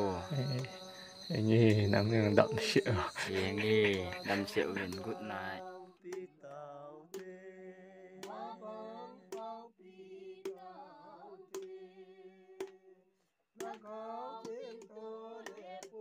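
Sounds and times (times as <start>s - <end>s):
steady drone: 0.0s - 5.6s
person singing with gliding notes: 0.0s - 6.6s.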